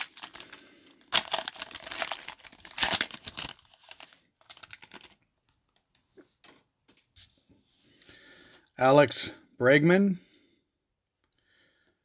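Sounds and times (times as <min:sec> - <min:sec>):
foil wrapper crackling: 0:00.0 - 0:05.2.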